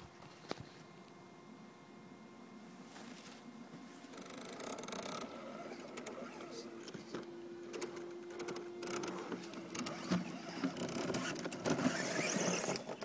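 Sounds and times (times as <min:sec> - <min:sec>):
electric motor whining: 0:04.1 - 0:13.0.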